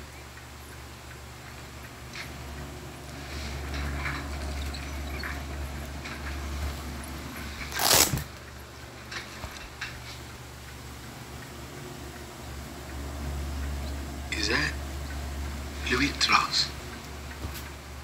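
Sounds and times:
low room hum: 0.0 - 18.0
chair rustle: 3.1 - 10.2.

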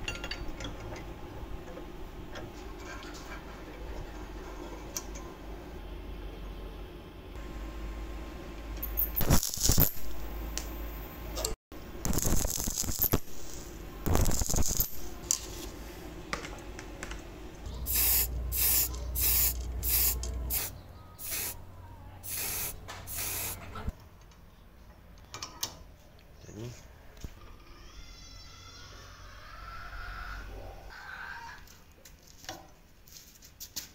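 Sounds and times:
arc welding crackling: 8.8 - 10.8, 11.8 - 15.8, 17.8 - 21.6, 22.2 - 23.7
aerosol spray can hissing: 17.9 - 21.6, 22.2 - 23.6.

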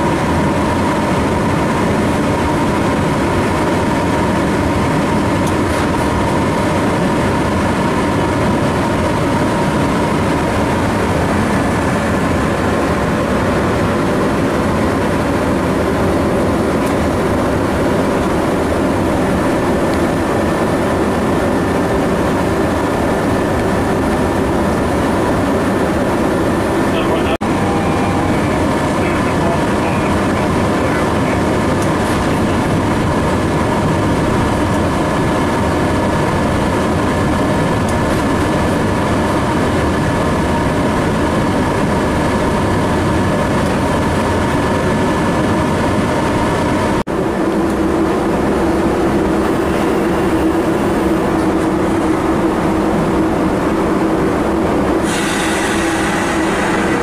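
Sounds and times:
cooling fans droning: 0.0 - 57.0
low hum: 0.0 - 57.0
steady whine: 0.0 - 57.0
wheels running on track: 0.0 - 57.0
hiss: 55.0 - 57.0.

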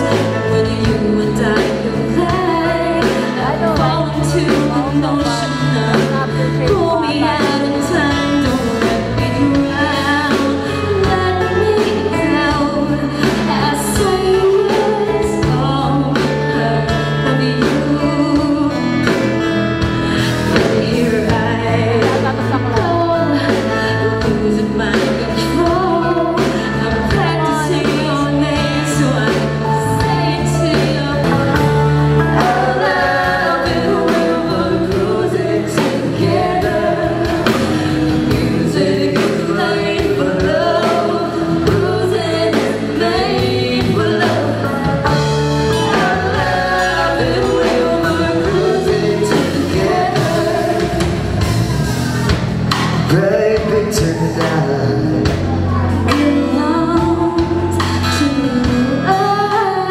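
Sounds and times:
bass guitar: 0.0 - 59.9
drum kit: 0.0 - 59.9
electric guitar: 0.0 - 59.9
keyboard: 0.0 - 59.9
woman singing lead: 0.0 - 59.9.

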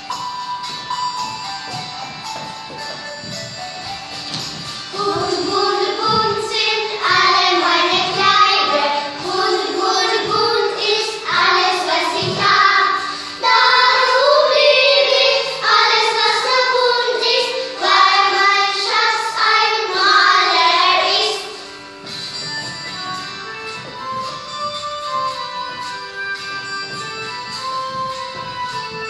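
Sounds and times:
girls singing together: 4.9 - 21.7.

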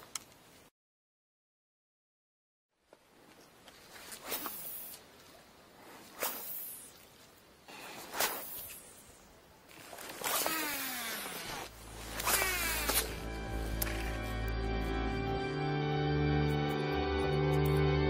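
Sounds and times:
fishing rod swishing: 3.9 - 5.1, 5.9 - 7.2, 7.8 - 14.6
reel spool whirring: 10.0 - 14.5
background music: 11.9 - 18.0.

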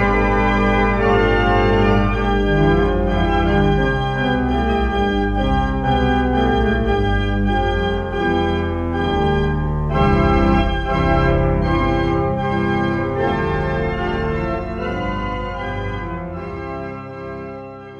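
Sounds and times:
deep organ pedal bass: 0.0 - 17.9
pipe organ chords: 0.0 - 17.9.

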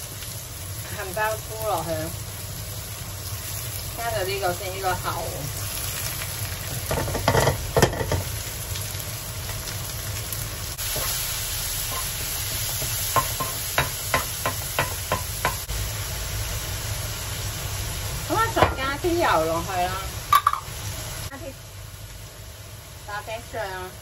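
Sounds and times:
mushrooms sizzling in a wok: 0.0 - 24.0
spatula clacking against pan: 13.2 - 15.6.

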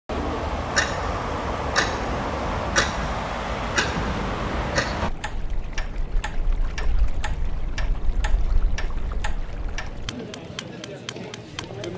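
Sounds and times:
street traffic hum: 0.1 - 11.9
clock ticking: 4.8 - 11.9.

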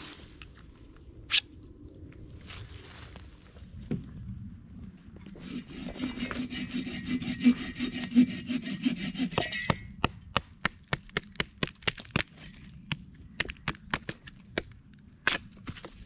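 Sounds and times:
hand saw cutting a branch: 5.4 - 10.2.

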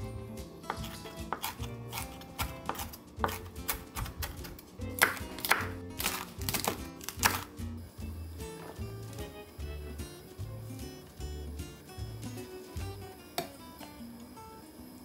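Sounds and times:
background music: 0.0 - 13.6
knife chopping on wooden board: 0.6 - 7.4.

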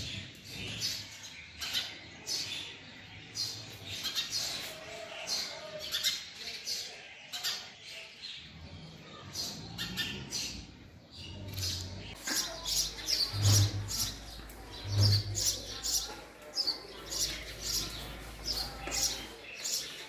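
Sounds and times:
sparrow chirping: 9.4 - 20.0.

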